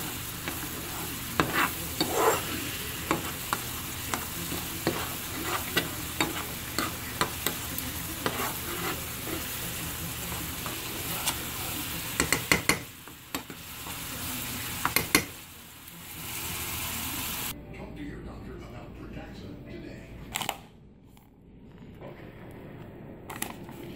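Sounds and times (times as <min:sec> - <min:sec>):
metal spoon scraping a pan: 0:00.0 - 0:14.0
sauce sizzling: 0:00.0 - 0:17.6.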